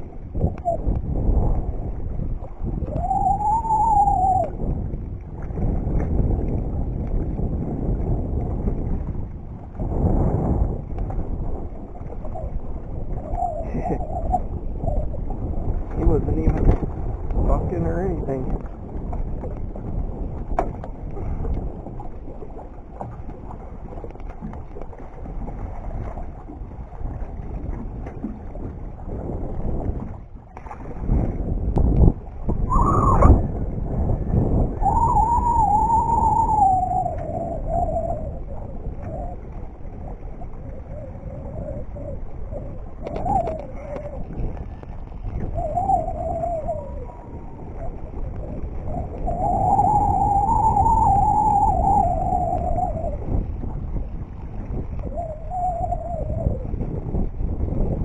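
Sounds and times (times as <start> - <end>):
choppy water sloshing: 0.0 - 35.8, 36.4 - 50.8, 52.2 - 58.0
wind buffeting microphone: 0.0 - 58.0
clear rising tone: 32.7 - 33.5.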